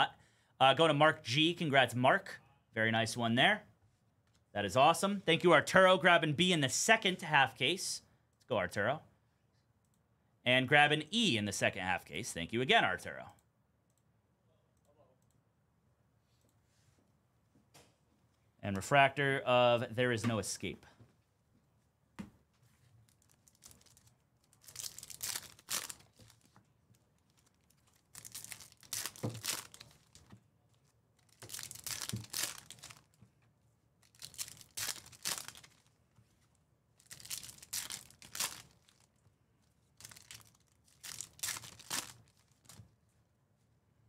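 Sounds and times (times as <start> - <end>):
foil wrappers crinkling and tearing: 23.1 - 26.6, 27.2 - 30.3, 31.2 - 33.2, 34.0 - 35.9, 37.0 - 39.1, 40.0 - 42.8.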